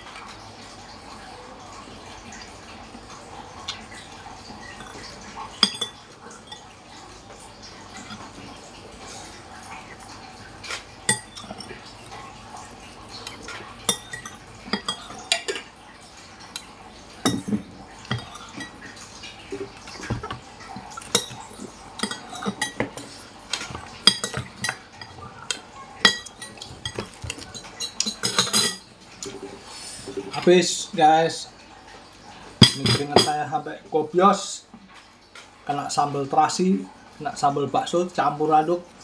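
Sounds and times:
cutlery clinking on ceramic bowl: 0:13.3 - 0:15.7, 0:22.0 - 0:28.9, 0:32.6 - 0:33.4.

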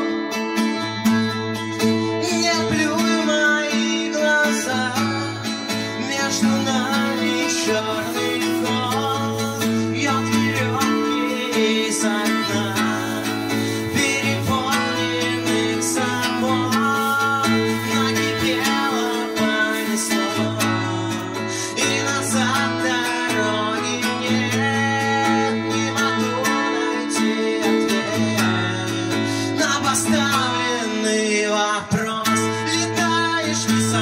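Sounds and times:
strummed acoustic guitar: 0:00.0 - 0:34.0
live band music: 0:05.3 - 0:29.4.

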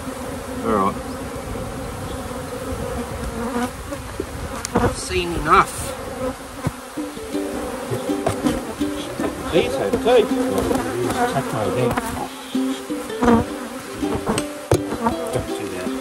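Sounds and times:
honeybees buzzing: 0:00.0 - 0:16.0.

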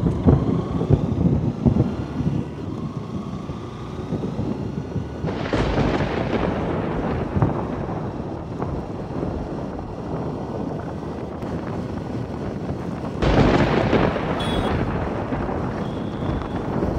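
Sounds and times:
wind and rain rush while riding: 0:00.0 - 0:16.9.

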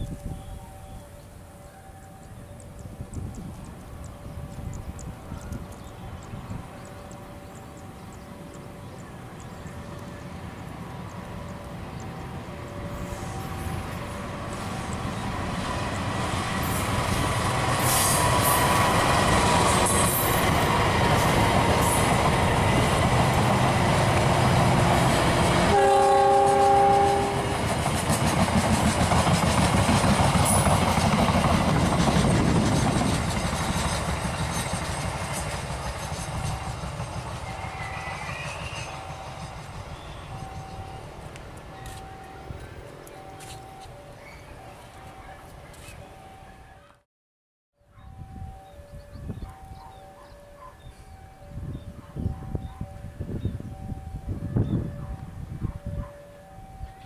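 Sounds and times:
train horn chord: 0:11.0 - 0:15.0, 0:23.7 - 0:27.7
train wheels clattering over rails: 0:26.4 - 0:43.8.

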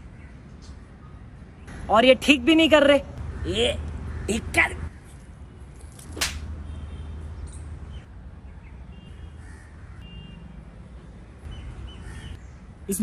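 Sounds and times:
crow cawing: 0:09.4 - 0:10.1.

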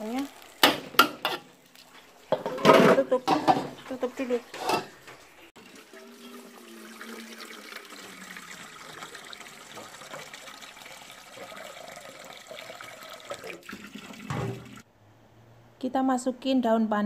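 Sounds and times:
tap water pouring into pot: 0:05.6 - 0:14.8.

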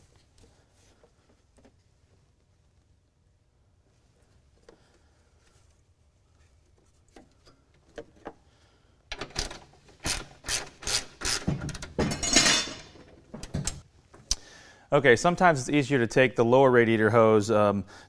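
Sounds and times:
ratchet wrench clicking: 0:09.4 - 0:11.5.

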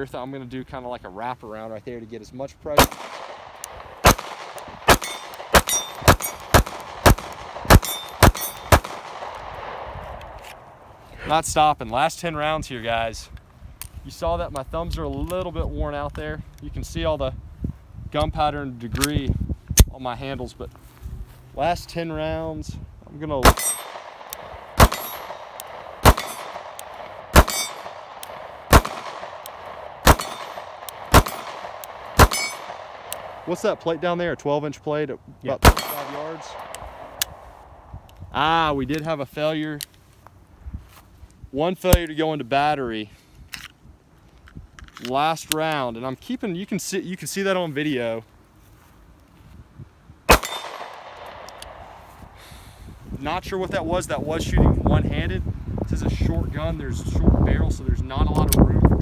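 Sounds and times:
pistol shots: 0:02.8 - 0:10.5, 0:23.4 - 0:34.0, 0:35.6 - 0:37.8, 0:50.3 - 0:52.0
metallic ring: 0:05.0 - 0:06.4, 0:07.8 - 0:08.7, 0:27.4 - 0:27.9, 0:32.3 - 0:32.6.

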